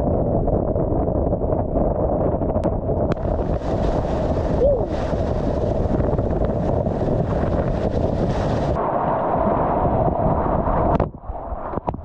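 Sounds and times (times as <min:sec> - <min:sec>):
wind buffeting microphone: 0:00.0 - 0:12.0
whitewater rushing and splashing: 0:03.1 - 0:10.9.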